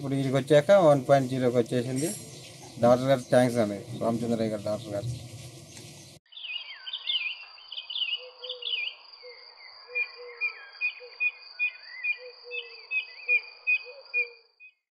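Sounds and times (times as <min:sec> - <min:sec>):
birds chirping: 0:00.0 - 0:14.8.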